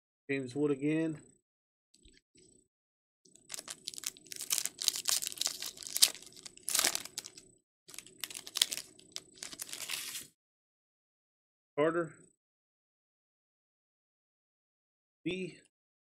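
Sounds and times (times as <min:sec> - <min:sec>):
foil wrapper crinkling and tearing: 0:03.5 - 0:10.3.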